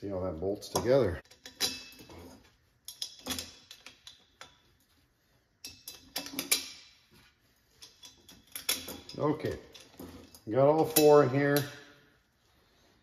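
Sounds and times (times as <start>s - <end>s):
metal bolts clicking and clinking: 0.6s - 2.2s, 2.8s - 4.8s, 5.6s - 7.1s, 7.7s - 12.0s.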